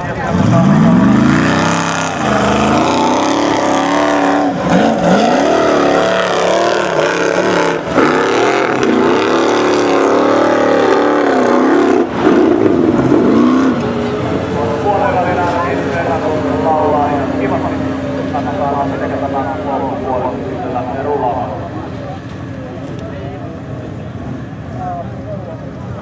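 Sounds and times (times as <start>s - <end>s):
buggy engine revving hard: 0.0s - 20.3s.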